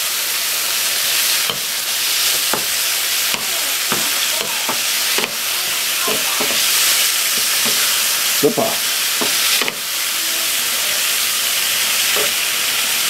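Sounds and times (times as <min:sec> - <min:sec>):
meat sizzling in a frying pan: 0:00.0 - 0:13.0
spatula scraping and knocking pan: 0:01.4 - 0:09.9.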